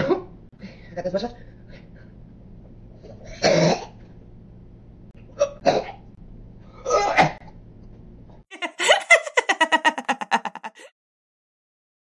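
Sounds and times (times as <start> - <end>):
woman coughing and gagging: 8.6 - 10.9.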